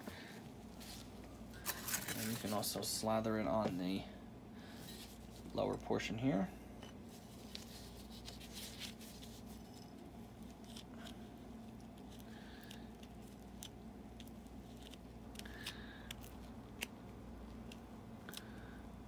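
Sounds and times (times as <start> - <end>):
steady low hum: 0.0 - 19.0
gloved hands rustling: 0.6 - 4.0, 6.9 - 18.6.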